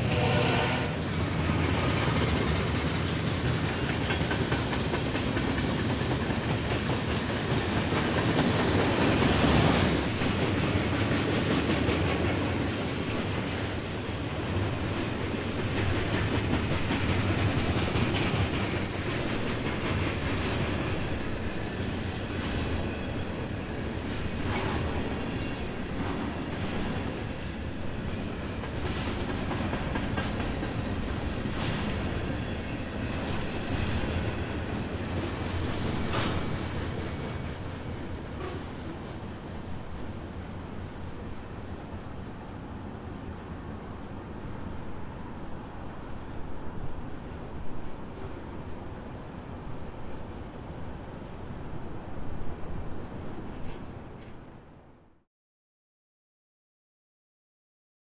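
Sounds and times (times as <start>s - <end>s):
wheels clacking over rail joints: 0.0s - 41.4s
freight train wheels rumbling: 0.0s - 54.6s.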